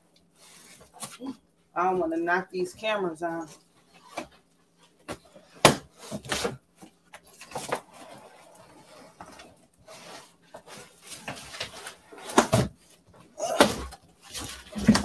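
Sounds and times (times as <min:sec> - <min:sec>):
foam and plastic wrap rustling: 0:03.9 - 0:15.0.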